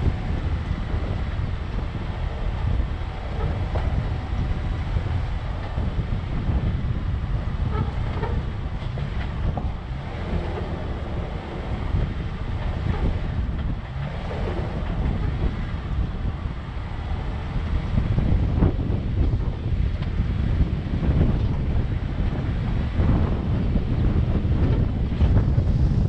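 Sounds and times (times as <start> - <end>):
vehicle rumbling on dirt trail: 0.0 - 26.0
wind buffeting microphone: 0.0 - 26.0.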